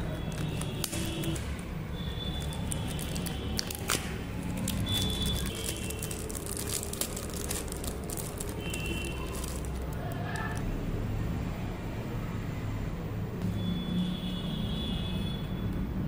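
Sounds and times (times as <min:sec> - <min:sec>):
foil and plastic crinkling: 0:00.1 - 0:01.6, 0:02.2 - 0:10.6.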